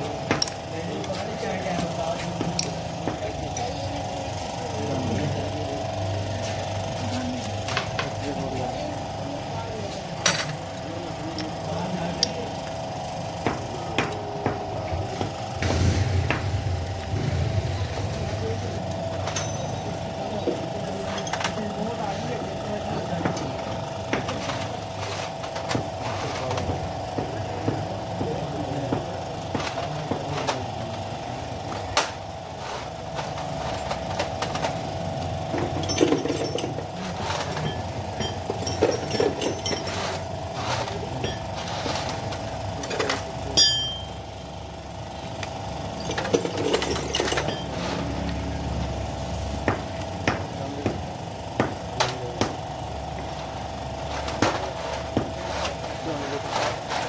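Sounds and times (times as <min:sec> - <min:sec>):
hand tools clicking and clinking: 0:00.0 - 0:04.0, 0:10.2 - 0:15.4, 0:18.4 - 0:26.8, 0:31.7 - 0:44.2, 0:45.4 - 0:48.4
workshop hum: 0:00.0 - 0:57.0
sharp metallic clink: 0:43.6 - 0:44.2.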